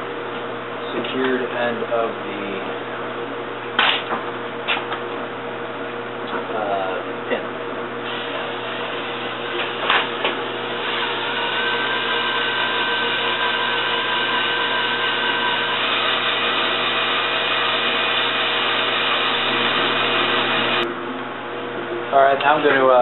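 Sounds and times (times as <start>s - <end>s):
electric drill whining: 8.1s - 20.8s.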